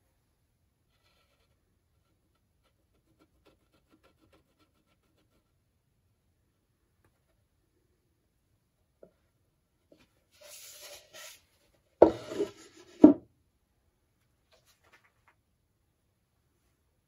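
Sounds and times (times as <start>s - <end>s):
gourd knocking on wooden workbench: 12.0s - 13.2s
gourd scraping against wood: 12.0s - 13.2s.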